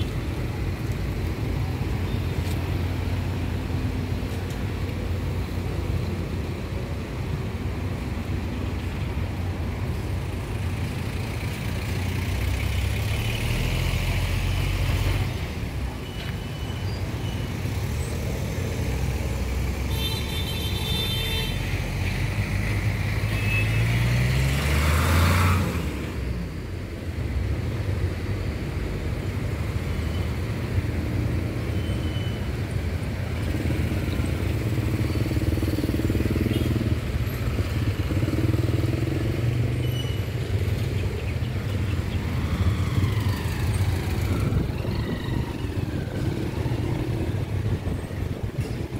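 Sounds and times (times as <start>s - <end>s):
traffic engines running: 0.0s - 48.9s
engine revving: 12.7s - 15.3s, 22.2s - 26.0s.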